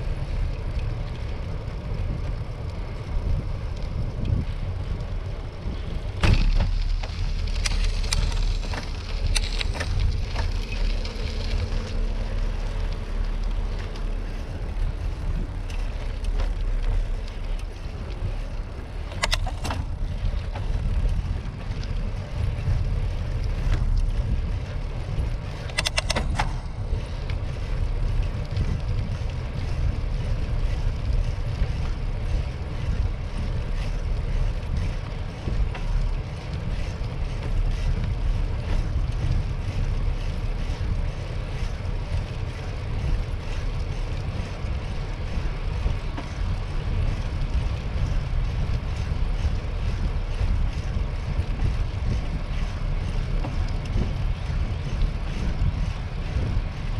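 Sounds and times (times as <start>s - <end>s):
tyre noise on pavement: 0.0s - 56.9s
wind buffeting the microphone: 0.0s - 56.9s
sharp clicks: 25.6s - 26.7s.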